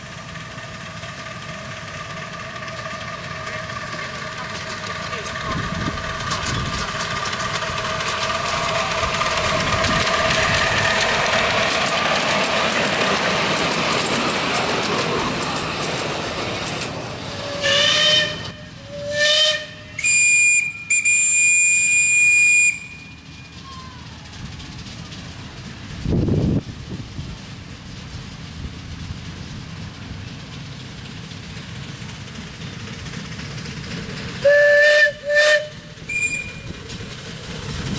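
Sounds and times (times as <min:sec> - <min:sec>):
miniature steam locomotive hissing: 0:00.0 - 0:37.9
steam whistle blasts: 0:17.4 - 0:23.2, 0:34.4 - 0:36.7.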